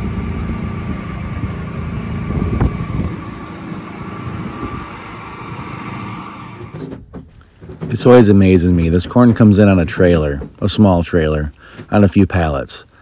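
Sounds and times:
thin steady whine: 0.0 - 6.9
tractor diesel engine idling: 0.0 - 13.0.

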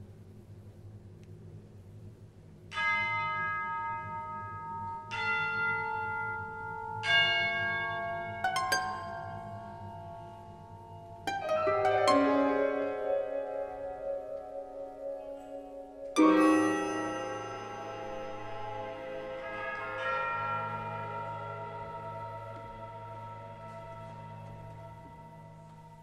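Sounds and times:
orchestra playing soft struck chords: 11.3 - 26.0.

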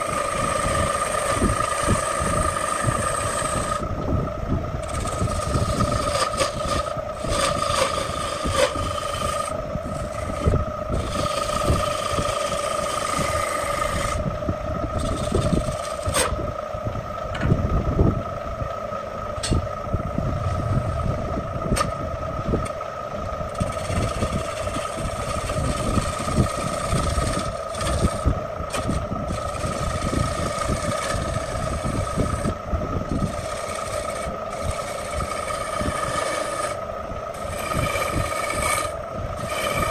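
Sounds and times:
gouge cutting wood: 0.0 - 3.8, 4.8 - 14.2, 15.0 - 16.4, 23.5 - 39.9
wood lathe humming: 0.0 - 17.4, 18.2 - 39.9.

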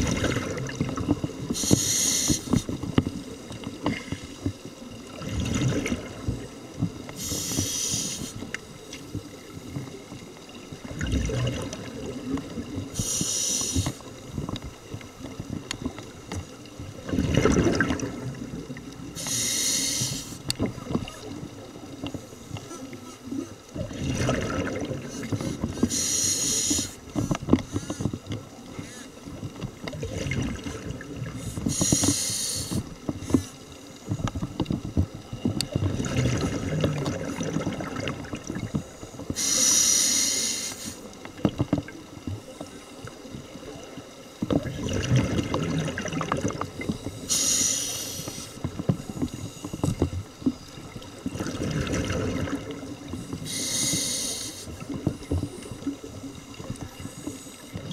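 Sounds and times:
exhaled bubbles rumbling: 0.0 - 1.9, 2.5 - 7.7, 8.4 - 19.3, 20.4 - 26.0, 27.0 - 39.5, 41.1 - 57.9
regulator inhalation hiss: 1.6 - 2.6, 7.2 - 8.4, 13.0 - 14.0, 19.2 - 20.4, 25.9 - 27.0, 31.7 - 32.9, 39.4 - 41.1, 47.2 - 48.6, 53.4 - 54.8.

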